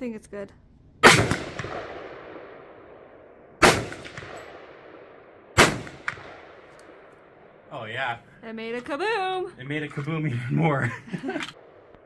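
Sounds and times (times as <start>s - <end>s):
rifle shots: 1.0s - 7.7s
gunshot echo rolling: 1.0s - 7.8s.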